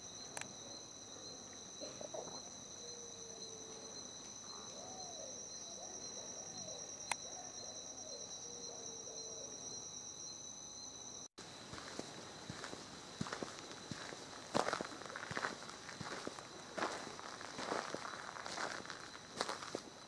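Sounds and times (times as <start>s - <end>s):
insects trilling: 0.0s - 20.0s.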